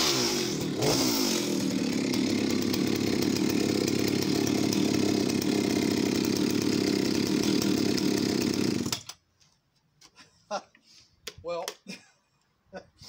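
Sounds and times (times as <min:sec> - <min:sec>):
chainsaw engine running: 0:00.0 - 0:09.1.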